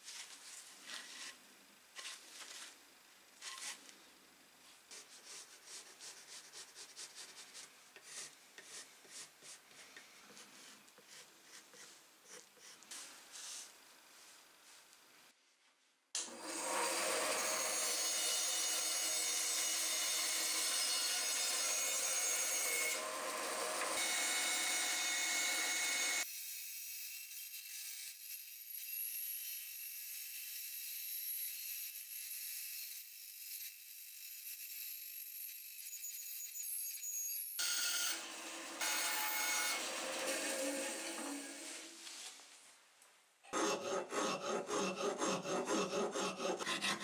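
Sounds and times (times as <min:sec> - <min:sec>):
band saw cutting wood: 0:16.2 - 0:26.3, 0:37.6 - 0:41.9, 0:43.5 - 0:47.0.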